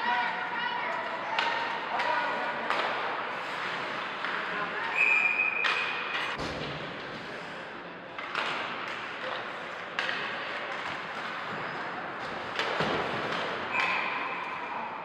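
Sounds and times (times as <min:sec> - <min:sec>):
referee's whistle: 0:04.9 - 0:05.9.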